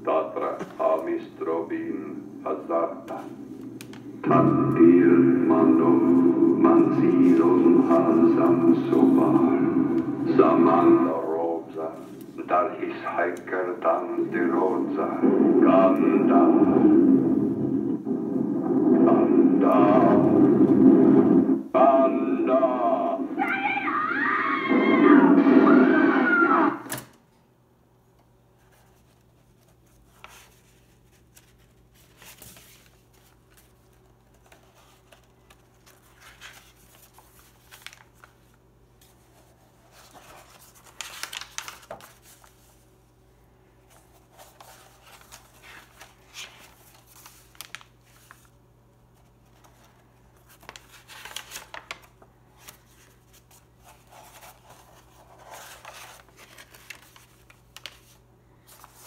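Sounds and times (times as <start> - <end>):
faint low hum: 0.0 - 59.0
paper pages rustling: 3.0 - 4.2, 6.0 - 15.1, 28.6 - 43.0, 43.8 - 59.0.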